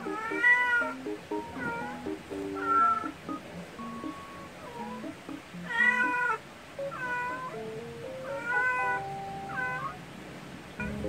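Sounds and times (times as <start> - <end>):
cat meowing: 0.1 - 0.9, 1.6 - 2.0, 2.6 - 3.1, 5.6 - 10.0.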